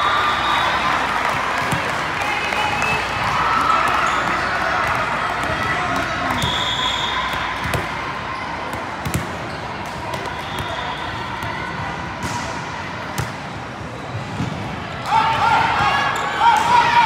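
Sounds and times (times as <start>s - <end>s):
murmur of spectators: 0.0s - 17.0s
volleyball bouncing on court: 7.2s - 10.8s.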